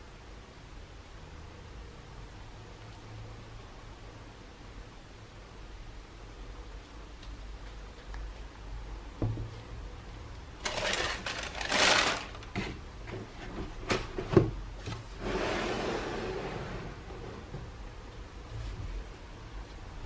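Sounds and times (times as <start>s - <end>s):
cardboard taps and knocks: 9.2s - 9.5s
tissue paper crinkling: 10.6s - 12.5s.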